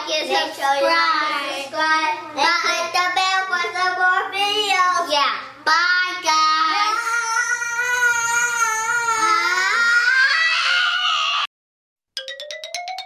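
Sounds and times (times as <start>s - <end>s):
child singing: 2.4s - 9.6s.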